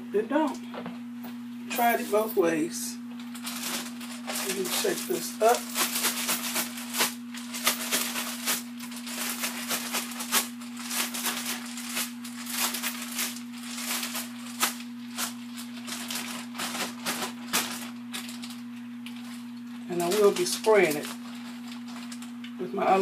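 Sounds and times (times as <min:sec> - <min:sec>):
steady low hum: 0:00.0 - 0:23.0
shaking food in plastic bag: 0:03.2 - 0:22.4.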